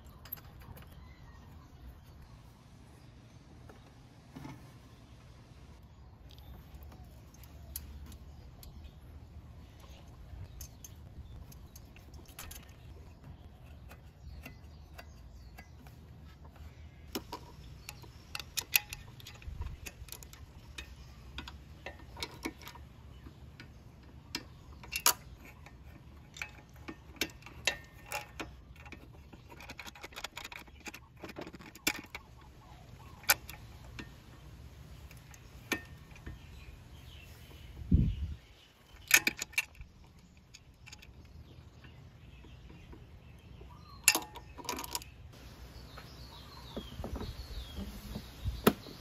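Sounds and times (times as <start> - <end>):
metallic clicks of hand tools: 17.1 - 22.9.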